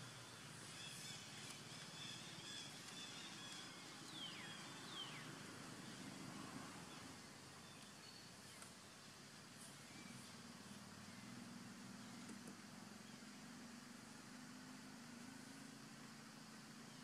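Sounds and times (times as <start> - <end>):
falling whistled calls: 0.0 - 9.1
faint forest ambience: 0.0 - 17.0.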